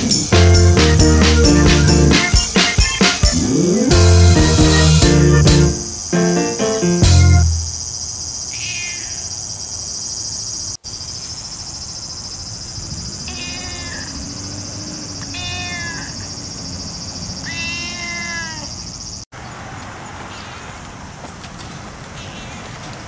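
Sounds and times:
high insect drone: 0.0 - 19.3
cat meowing: 8.5 - 9.2, 13.3 - 14.2, 15.3 - 16.3, 17.4 - 18.7.

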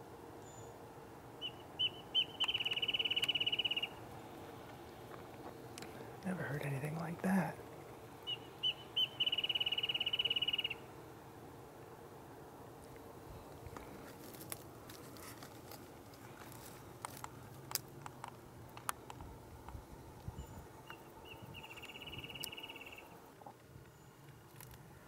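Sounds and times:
faint clicks and crackles: 4.6 - 6.3, 12.8 - 21.0, 23.4 - 24.9.

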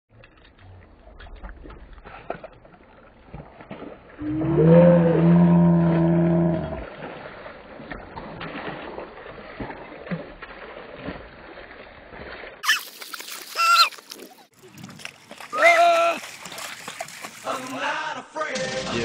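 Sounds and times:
water trickling over stones: 0.1 - 4.5, 5.5 - 17.9.

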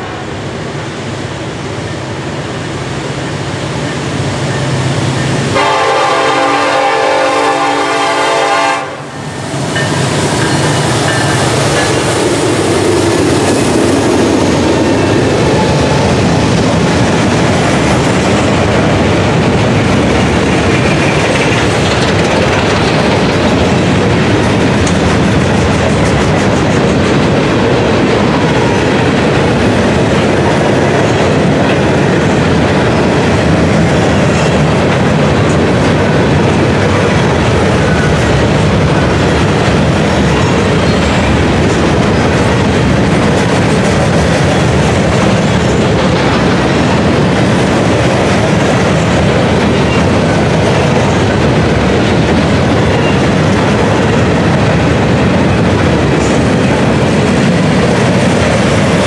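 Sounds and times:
freight cars rumbling: 0.0 - 59.0
locomotive engines passing: 0.0 - 59.0
train horn: 5.5 - 9.2
wheels clacking over rail joints: 9.6 - 59.0.

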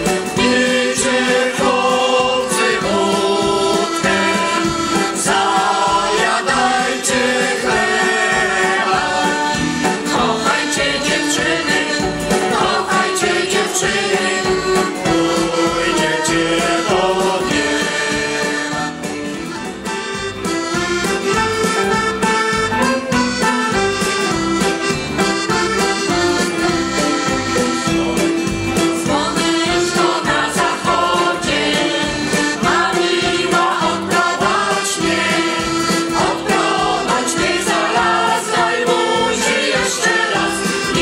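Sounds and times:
mixed choir singing: 0.0 - 19.1, 28.8 - 41.0.

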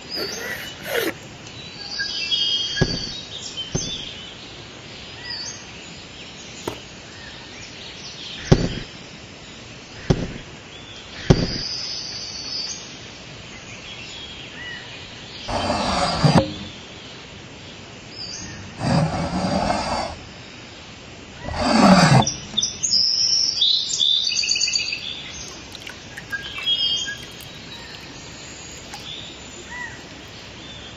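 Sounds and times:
outdoor ambience: 0.0 - 11.9, 15.0 - 30.9
sharp taps of bricks set down: 6.6 - 7.0
faint bird chirps: 24.6 - 30.9.

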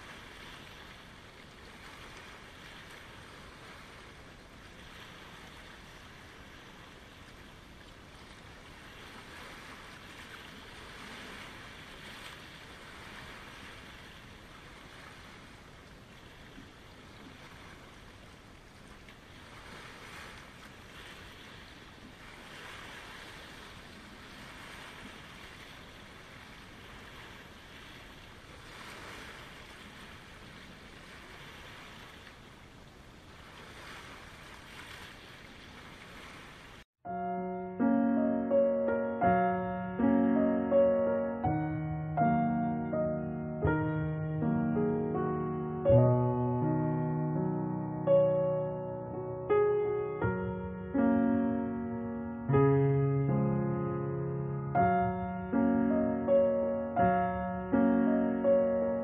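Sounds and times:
waves lapping on pebble shore: 0.0 - 36.9.

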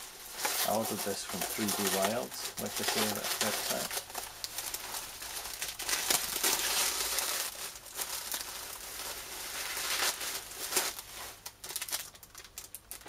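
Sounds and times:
bubble wrap crinkling: 0.0 - 13.0
plastic bag rustling: 0.0 - 13.0.

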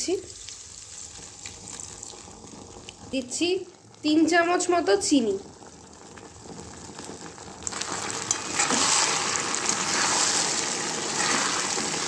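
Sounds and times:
food sizzling in a wok: 0.0 - 12.0
spatula stirring: 7.6 - 12.0.

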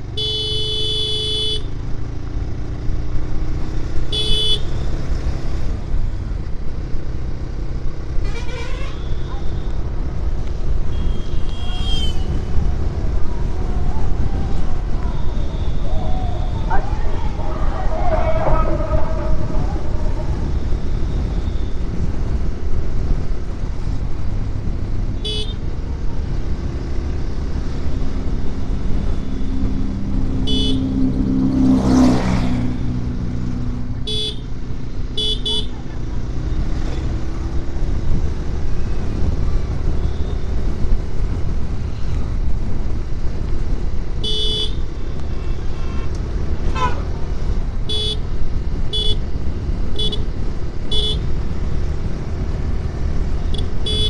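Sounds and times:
motorcycle engine rumble: 0.0 - 54.0
passing vehicle whoosh: 12.1 - 24.7, 26.0 - 34.0
horn short beeps: 53.6 - 54.0.

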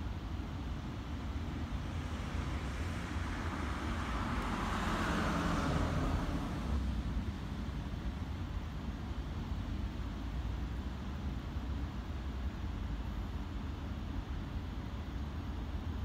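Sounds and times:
low rumble of traffic: 0.0 - 16.0
vehicle passing by: 1.6 - 7.8.

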